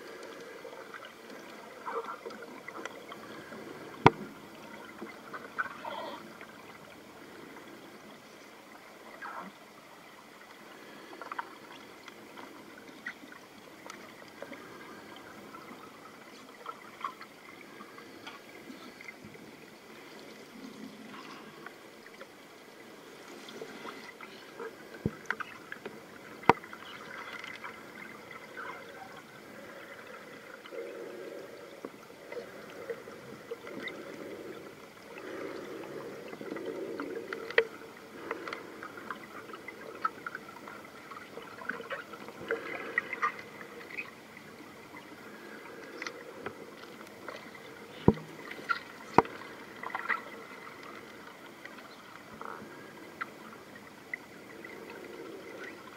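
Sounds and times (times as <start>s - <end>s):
muffled gurgling underwater: 3.4s - 6.4s.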